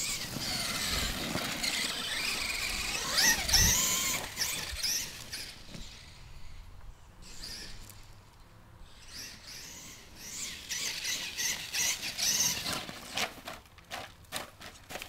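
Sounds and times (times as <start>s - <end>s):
electric motor whining: 0.0s - 6.6s.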